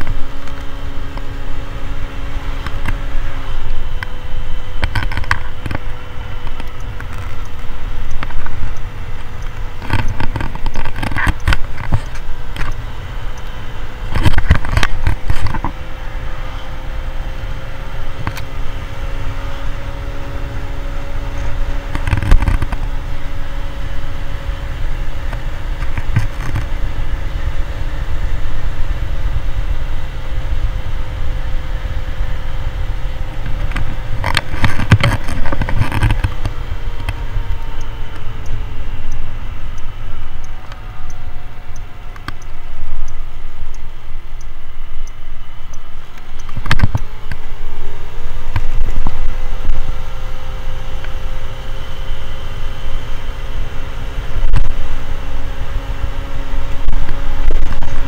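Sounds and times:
motor scooter engine: 0:00.0 - 0:43.0
wind rumble on microphone: 0:24.6 - 0:39.2, 0:54.2 - 0:58.0.

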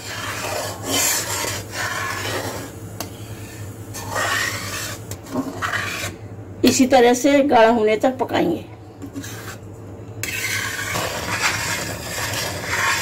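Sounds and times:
spatula scraping steel pan: 0:00.0 - 0:06.2, 0:09.1 - 0:09.6, 0:10.2 - 0:13.0.

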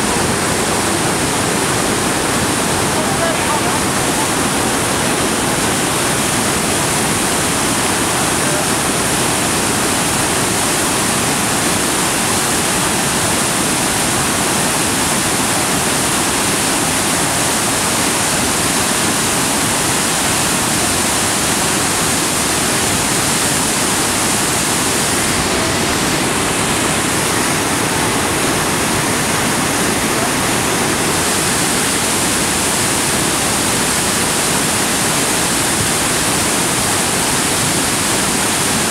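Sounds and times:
water rushing over waterfall: 0:00.0 - 0:38.9.

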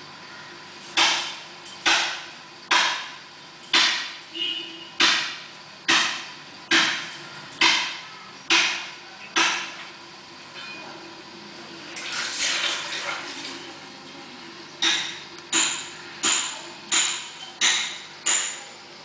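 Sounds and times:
sharp knocks: 0:01.0 - 0:04.2, 0:05.0 - 0:09.8, 0:14.8 - 0:18.6.

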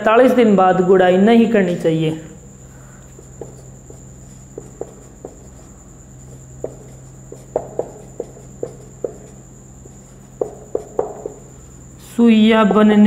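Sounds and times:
steady high-pitched whine: 0:00.0 - 0:13.0
marker squeaking on whiteboard: 0:03.0 - 0:11.6.

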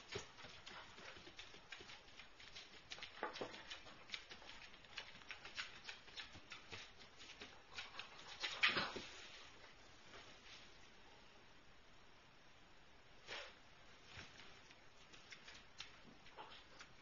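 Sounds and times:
puppy claws clicking on hard floor: 0:00.0 - 0:09.2, 0:14.4 - 0:17.0.

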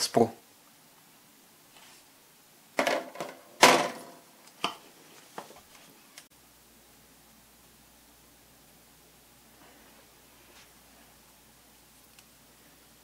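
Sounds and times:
small objects knocking on work surface: 0:02.8 - 0:04.8.

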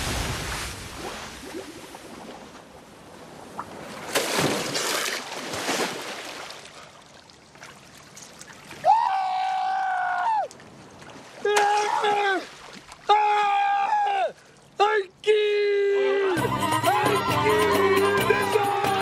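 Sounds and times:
water splashing from swimming: 0:03.5 - 0:08.8.

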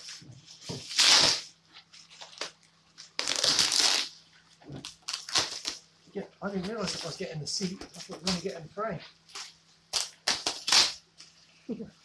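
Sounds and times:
plastic bag rustling and tearing: 0:00.8 - 0:04.1, 0:04.8 - 0:05.8.

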